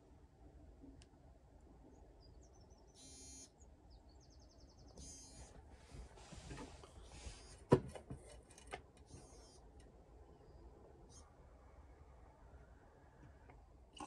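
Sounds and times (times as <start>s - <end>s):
watch alarm buzzing chirps: 3.0s - 3.6s, 5.0s - 5.5s.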